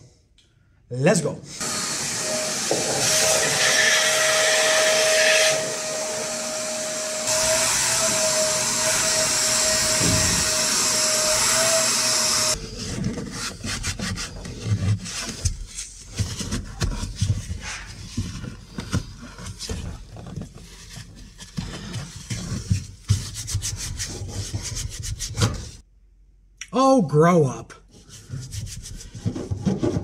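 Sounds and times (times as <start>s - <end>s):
shop vacuum running: 1.5s - 12.6s.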